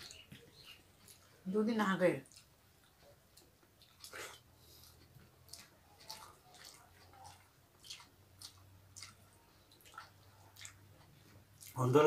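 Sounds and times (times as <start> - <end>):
wet chewing smacks: 0.0 - 1.3, 2.2 - 11.9
fingers mixing food on a plate: 4.7 - 11.8.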